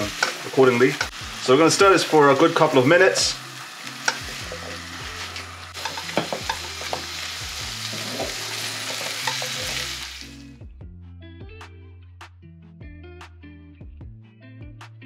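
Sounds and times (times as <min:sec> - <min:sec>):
potatoes sizzling in oil: 0:00.0 - 0:10.5
spatula scraping and tapping pan: 0:05.8 - 0:07.1.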